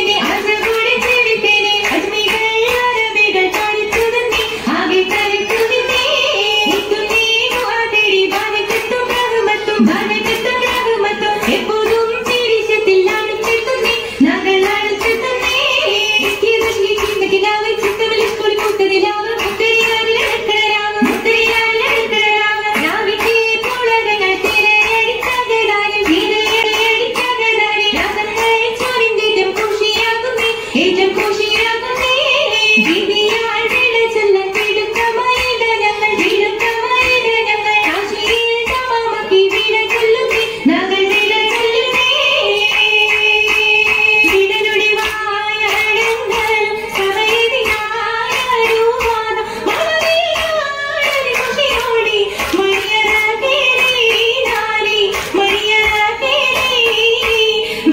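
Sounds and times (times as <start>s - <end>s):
girls singing: 0.0s - 57.9s
rhythmic hand claps: 0.0s - 57.9s.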